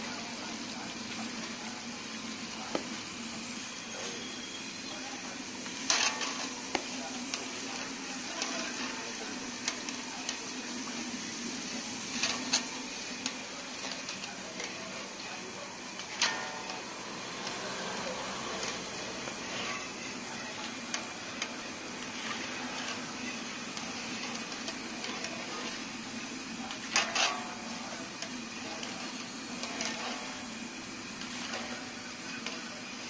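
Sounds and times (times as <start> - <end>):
chips sizzling in oil: 0.0 - 33.0
metal skimmer scraping a pan: 5.7 - 10.4, 11.7 - 13.0, 18.4 - 33.0.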